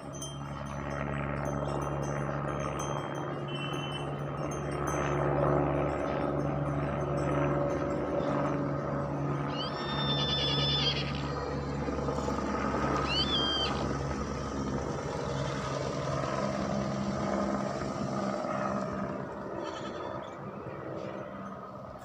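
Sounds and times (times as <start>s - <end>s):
low engine drone: 0.0s - 22.0s
high-pitched animal calls: 9.5s - 11.2s, 13.0s - 13.8s, 19.6s - 20.3s.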